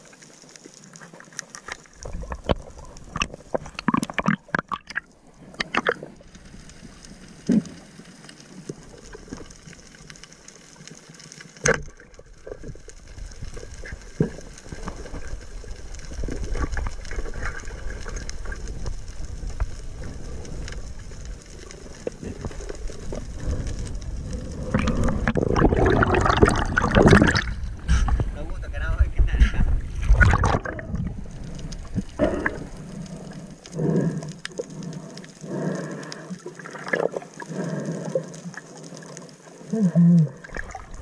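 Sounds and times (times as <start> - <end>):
water sloshing and splashing: 22.0 - 28.4, 29.7 - 39.7, 40.4 - 41.0.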